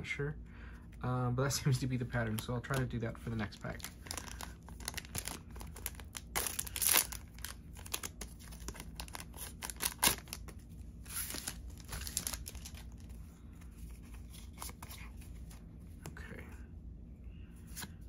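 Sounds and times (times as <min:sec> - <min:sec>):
wrapper crinkling and tearing: 0:03.5 - 0:13.1.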